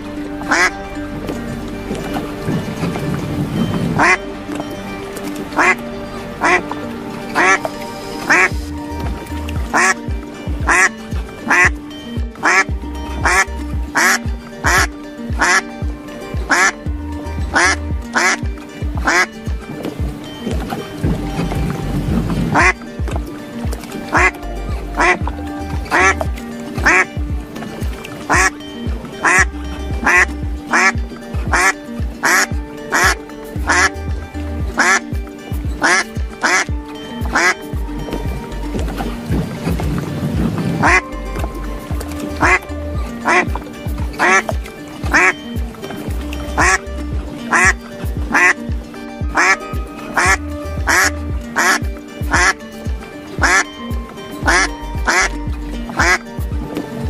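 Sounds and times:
duck-like quack: 0.5 - 0.7, 9.8 - 10.0, 10.7 - 10.9, 11.5 - 11.7, 12.4 - 15.6, 17.6 - 18.4, 19.0 - 19.3, 29.2 - 33.9, 37.3 - 37.6, 50.2 - 52.6, 53.4 - 53.6, 56.0 - 56.2
music with thumping beat: 7.4 - 57.0.

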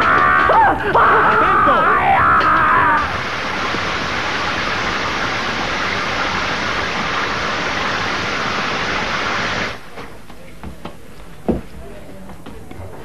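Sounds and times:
falling water rushing: 0.0 - 9.9.

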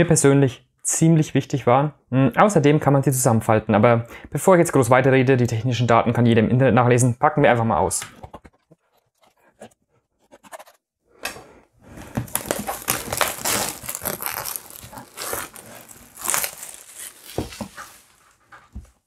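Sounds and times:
packaging rustling and crinkling: 11.8 - 19.0.

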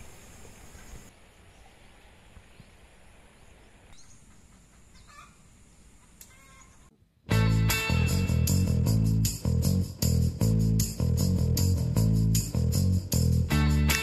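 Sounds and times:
faint bird calls: 0.0 - 6.9
faint farm background: 0.0 - 7.2.

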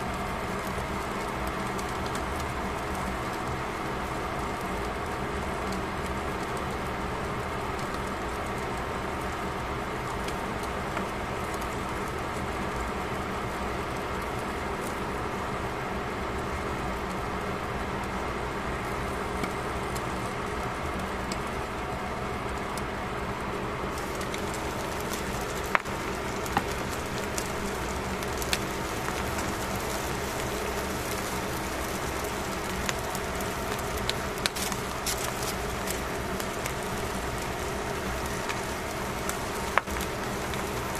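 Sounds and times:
crackles and pops: 0.0 - 40.9
fish sizzling in pan: 23.8 - 40.9.

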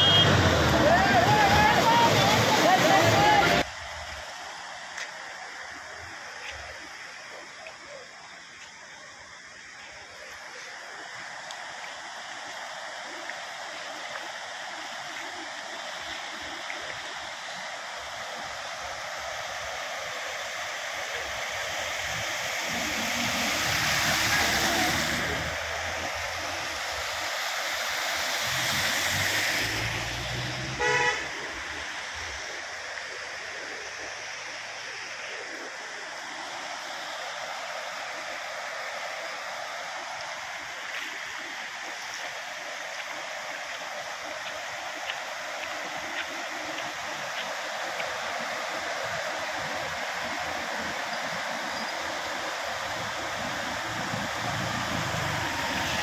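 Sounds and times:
vehicle horn toot: 0.0 - 0.5, 30.8 - 31.3
vehicles passing: 0.0 - 3.7, 22.7 - 26.9, 28.2 - 32.8, 53.7 - 56.0
floodwater rushing: 0.0 - 56.0.

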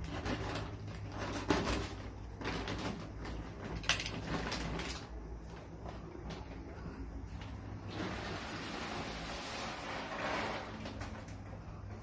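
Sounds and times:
plastic bag crinkling: 0.0 - 5.3
steady low hum: 0.0 - 12.0.

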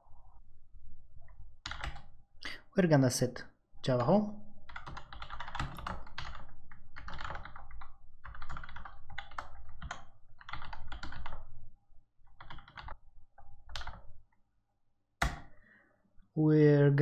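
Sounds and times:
typing on computer keyboard: 1.6 - 2.1, 4.0 - 11.6, 12.2 - 14.2.

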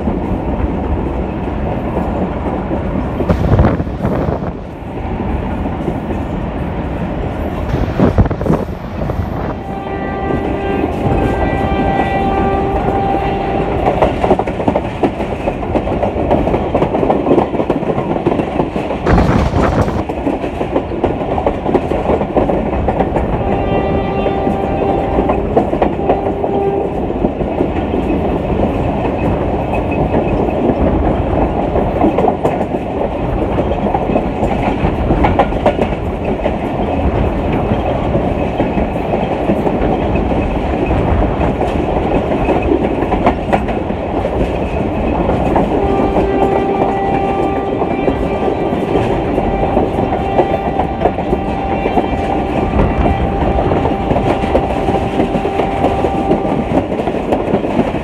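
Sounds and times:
train wheels clickety-clack: 0.0 - 58.0
locomotive horn: 9.0 - 14.2, 23.3 - 27.1, 45.7 - 56.8.

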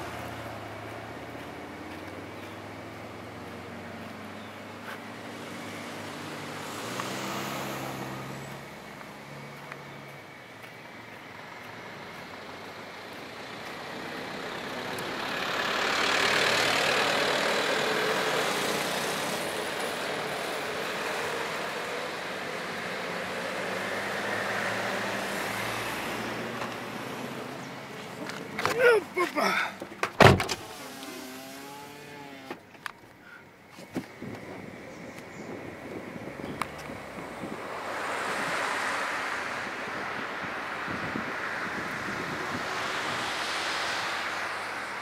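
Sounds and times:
engine hum: 0.0 - 45.0
rush of engine and tyre noise: 0.0 - 45.0.

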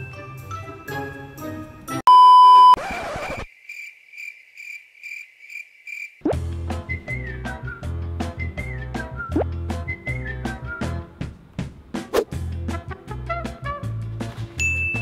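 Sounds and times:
upbeat music with whistled melody: 0.0 - 1.6, 6.3 - 11.1, 13.2 - 15.0
background music: 0.0 - 2.1, 6.3 - 15.0
loud steady beep: 2.1 - 2.8
short high beeps: 2.1 - 2.8.

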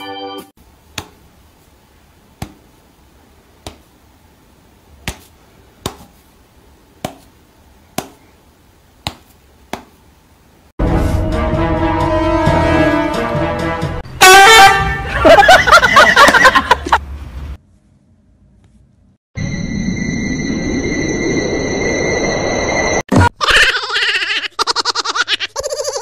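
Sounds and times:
loud music: 10.8 - 14.0.

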